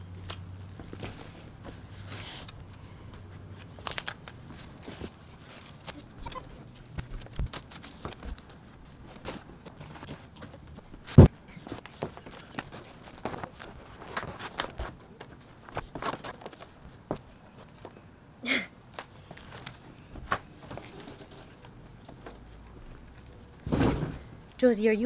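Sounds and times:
cardboard rustling and scraping: 0:00.2 - 0:02.5, 0:04.5 - 0:18.0.

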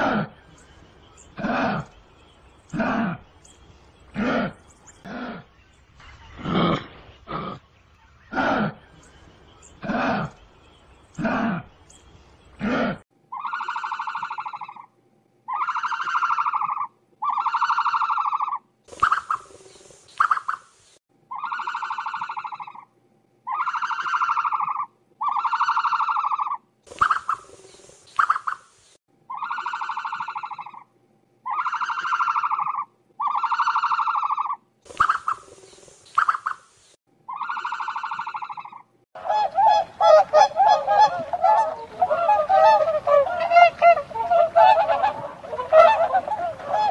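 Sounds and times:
bird honking calls: 0:37.3 - 0:46.9
goose-like honking: 0:39.2 - 0:46.9.

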